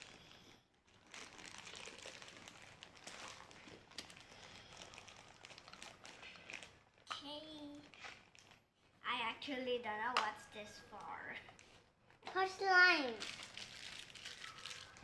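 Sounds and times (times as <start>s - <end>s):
plastic toy pieces rustling: 11.0s - 15.0s.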